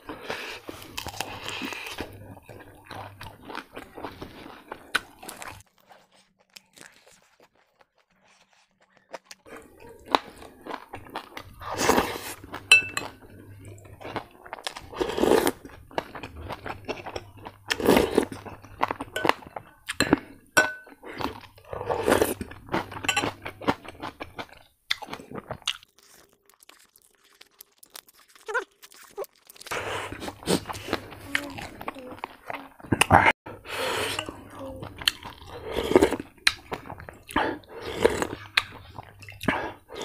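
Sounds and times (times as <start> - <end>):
crunching and chewing food: 0.0 - 40.0
slurping soup: 11.2 - 25.9, 28.0 - 40.0
metal spoon clinking ceramic bowl: 12.7 - 13.1, 20.0 - 21.0, 23.0 - 23.4.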